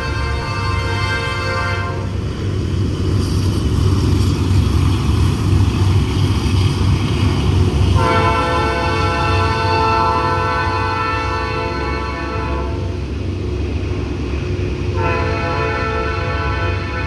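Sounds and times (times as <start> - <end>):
train air horn: 0.0 - 2.2, 8.0 - 13.0, 14.9 - 17.0
locomotive rumbling: 0.0 - 17.0.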